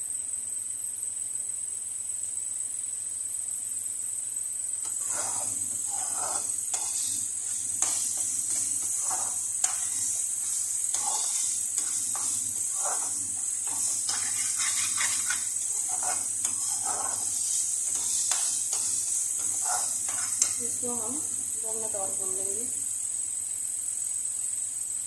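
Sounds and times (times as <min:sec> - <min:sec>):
masala sizzling in oil: 0:04.7 - 0:25.0
metal spatula scraping pan: 0:04.8 - 0:20.8.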